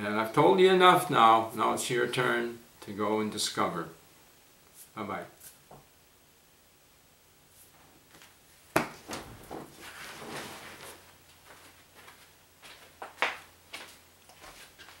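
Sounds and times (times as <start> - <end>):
leather chair creaking and rustling: 9.0 - 11.6.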